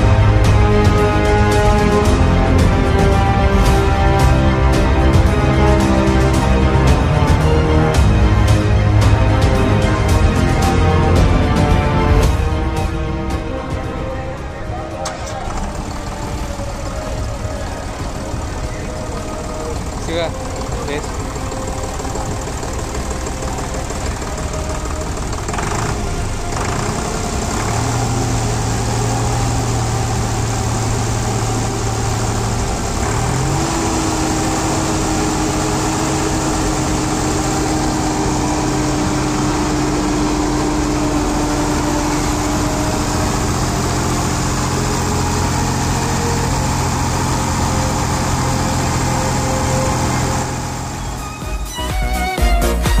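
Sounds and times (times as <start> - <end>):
continuous background din: 0.0 - 51.9
engine running: 0.0 - 53.0.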